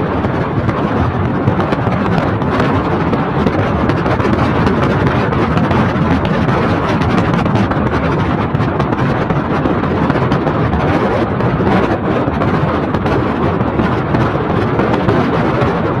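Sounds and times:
low road rumble: 0:00.0 - 0:16.0
tyre and wind noise: 0:00.0 - 0:16.0.

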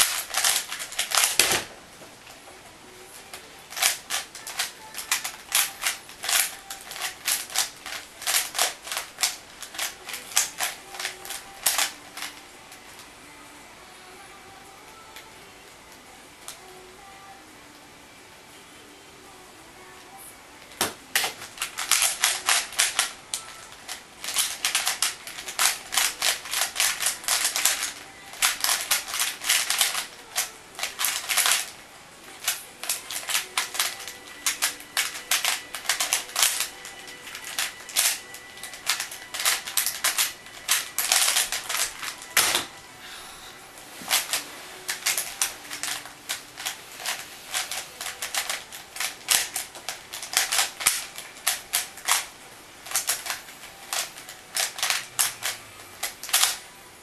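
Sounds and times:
plastic puzzle cube clicks: 0:00.0 - 0:01.7, 0:03.3 - 0:12.4, 0:20.6 - 0:42.8, 0:44.1 - 0:56.7.

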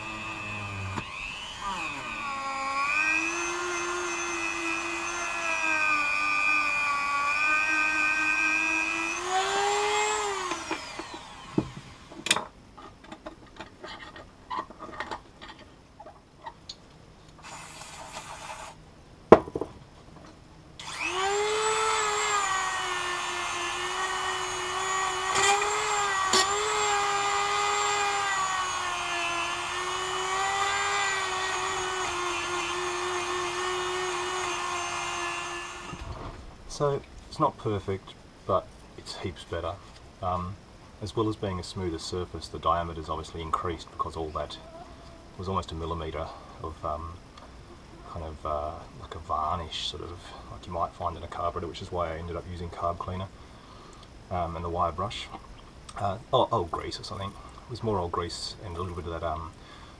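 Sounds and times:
rotary tool whining: 0:00.0 - 0:12.4, 0:17.4 - 0:18.8, 0:20.8 - 0:36.4.

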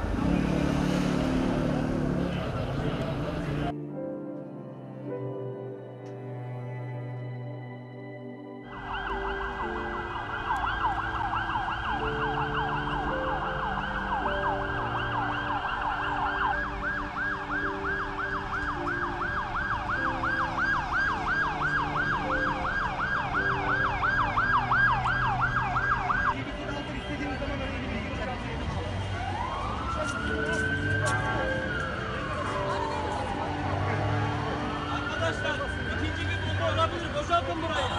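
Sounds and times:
emergency siren yelping: 0:08.7 - 0:26.4, 0:29.2 - 0:37.2.

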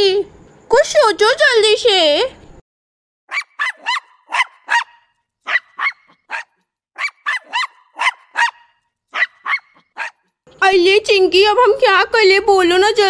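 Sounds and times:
small dog yapping: 0:03.3 - 0:10.3.

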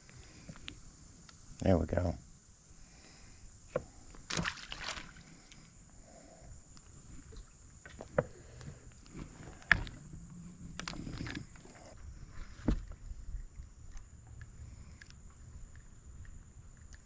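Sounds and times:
water sloshing against hull: 0:03.8 - 0:05.6
rustling splash: 0:04.3 - 0:05.4
fishing gear knocks and clicks: 0:10.7 - 0:11.7.

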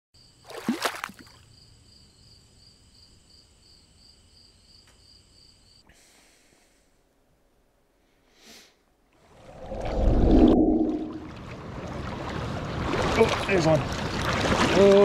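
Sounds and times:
high cricket-like chirping: 0:01.2 - 0:05.9
swoosh with falling tone: 0:09.3 - 0:11.4.

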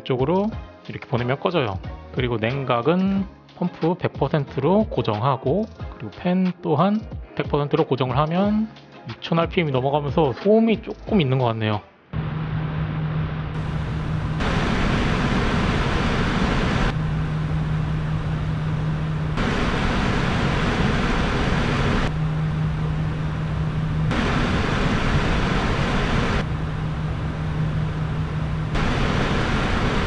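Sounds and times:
cooling fans whooshing air: 0:12.2 - 0:30.0
low fan hum: 0:12.2 - 0:30.0.

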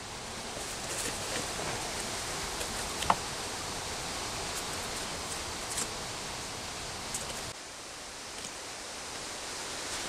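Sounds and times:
leaves rustling in metal pot: 0:00.0 - 0:07.5
steady outdoor hiss: 0:00.0 - 0:10.0.

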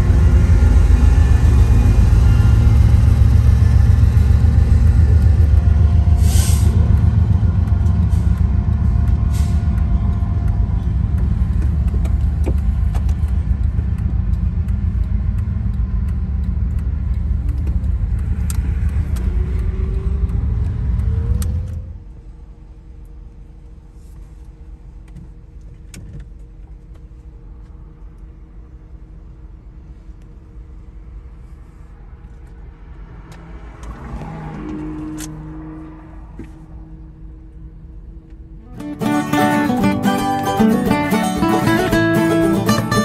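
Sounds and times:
car cabin engine rumble: 0:00.0 - 0:32.9
diesel locomotives humming: 0:00.0 - 0:43.0.

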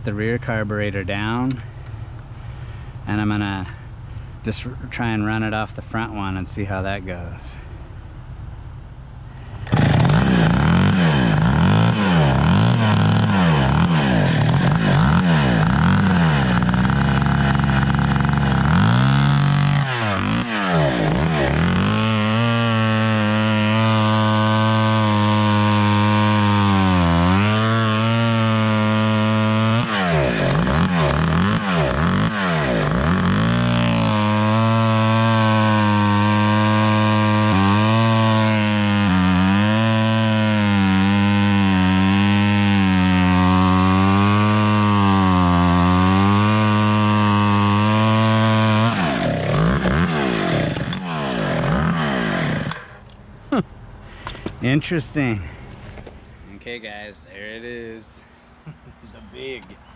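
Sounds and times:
chainsaw cutting log: 0:09.5 - 0:53.1.

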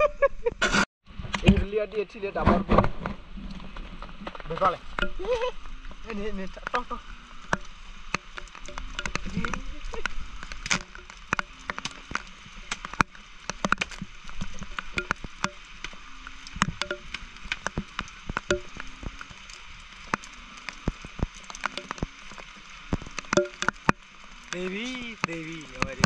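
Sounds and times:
steady high hiss: 0:04.5 - 0:26.0
sharp taps and clicks: 0:07.5 - 0:22.2, 0:22.9 - 0:26.0.

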